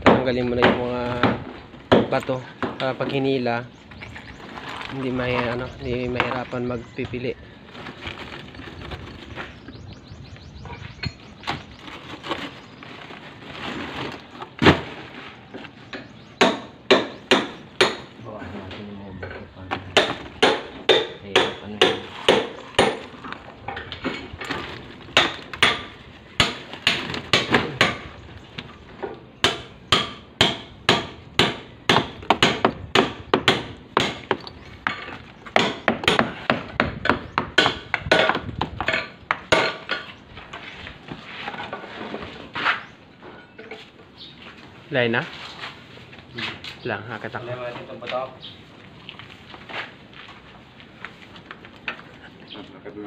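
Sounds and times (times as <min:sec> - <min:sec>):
tools knocking on concrete: 0:30.4 - 0:40.2.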